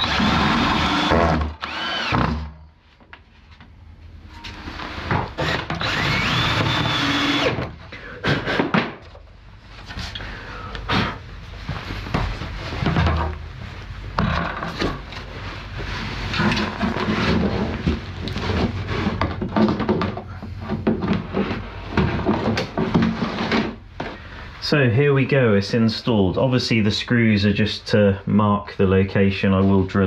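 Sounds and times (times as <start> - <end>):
cordless drill driving screws: 0.0 - 2.4, 5.4 - 7.7.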